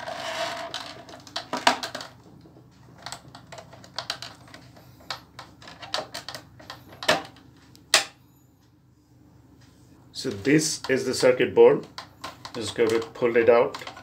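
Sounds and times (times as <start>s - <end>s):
plastic clicks and rattles: 0.6s - 7.4s, 10.3s - 14.0s.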